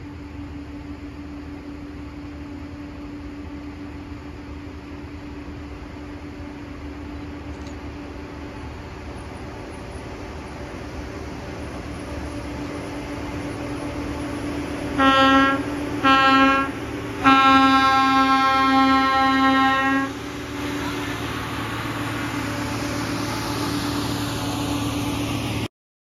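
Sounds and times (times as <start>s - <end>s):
rail machine engine running: 0.0s - 25.7s
one-note horn blasts: 15.0s - 20.2s.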